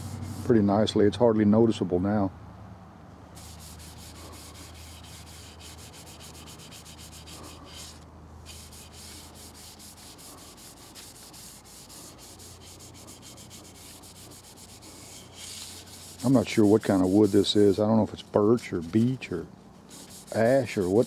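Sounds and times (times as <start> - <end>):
cloth rag rubbing wood: 0.0 - 0.5, 3.4 - 17.8, 19.9 - 21.0.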